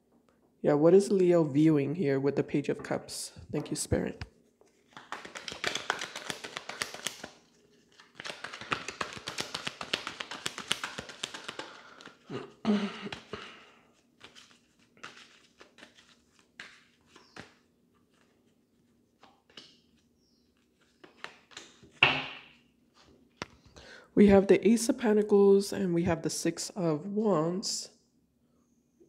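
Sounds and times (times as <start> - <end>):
cards shuffled: 4.0 - 12.2, 13.1 - 23.7
cards tapping and sliding: 4.6 - 12.2, 14.2 - 18.4, 19.2 - 20.0, 20.6 - 23.6.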